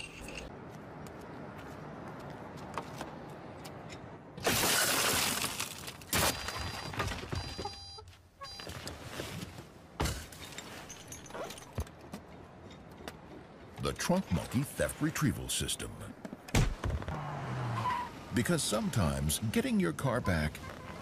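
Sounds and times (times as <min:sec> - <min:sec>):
glass breaking: 0:04.4 - 0:06.8.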